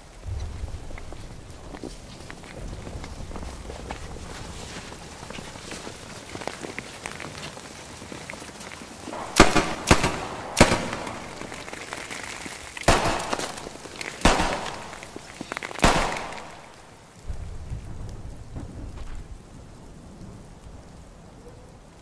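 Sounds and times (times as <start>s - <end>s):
gunshots with echo: 9.1s - 12.0s, 12.8s - 17.0s.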